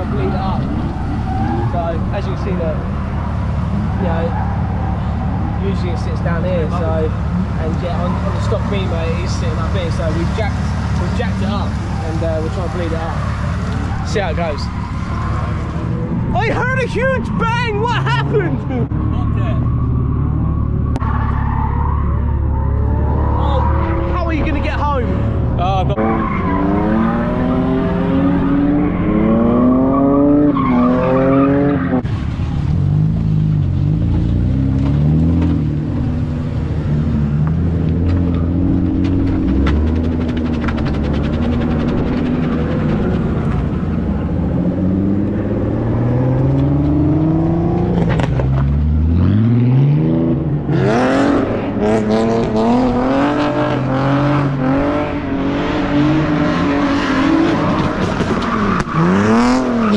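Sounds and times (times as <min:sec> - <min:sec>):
car engines revving: 0:00.0 - 0:59.9
tyre and track noise: 0:37.3 - 0:49.0, 0:56.6 - 0:59.9.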